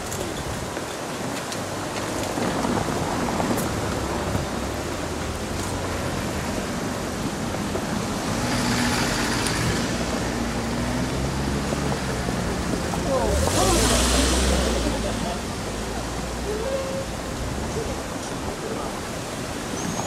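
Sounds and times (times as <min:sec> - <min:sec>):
traffic noise: 0:00.0 - 0:20.0.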